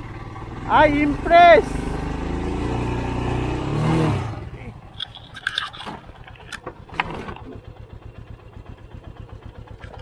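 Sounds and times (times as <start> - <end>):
motorcycle engine idling: 0.0 - 3.7, 4.3 - 10.0
sharp clicks and knocks: 4.9 - 7.6, 9.7 - 10.0.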